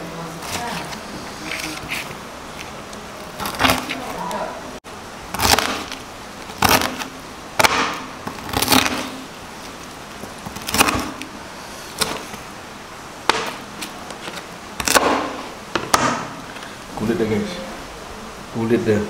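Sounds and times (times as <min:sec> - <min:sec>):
knife chopping crispy pork: 0:03.4 - 0:04.0, 0:05.4 - 0:09.2, 0:10.5 - 0:11.3, 0:12.0 - 0:12.3, 0:13.2 - 0:14.0, 0:14.8 - 0:16.3.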